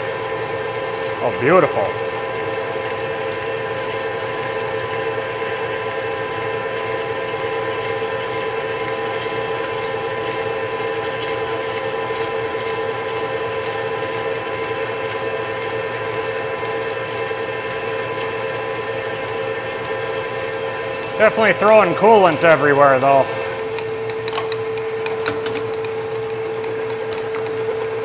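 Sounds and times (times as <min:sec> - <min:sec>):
lathe drill cutting drone: 0:20.8 - 0:25.0.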